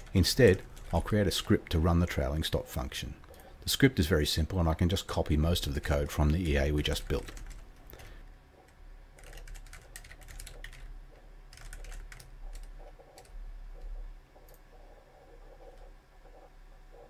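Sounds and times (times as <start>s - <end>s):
typing on computer keyboard: 6.8s - 8.1s, 9.2s - 10.9s, 11.5s - 13.4s.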